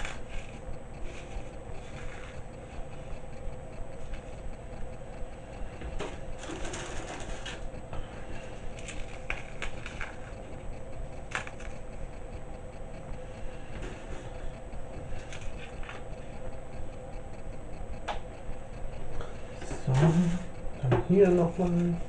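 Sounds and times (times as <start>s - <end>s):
meringue crackling as crumbled: 6.2s - 12.8s.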